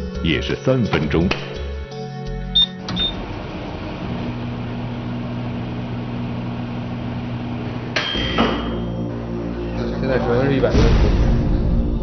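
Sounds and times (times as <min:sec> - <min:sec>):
microwave oven humming: 0:02.5 - 0:09.3.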